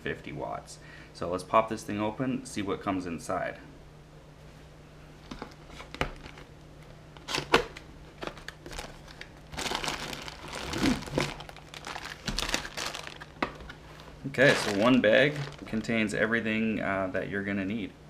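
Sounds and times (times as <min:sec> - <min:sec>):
plastic bag crinkling: 0:05.3 - 0:06.5, 0:07.2 - 0:16.2.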